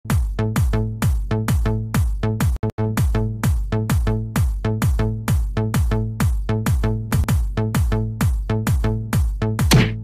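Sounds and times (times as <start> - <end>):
kick drum: 0.1 - 10.0.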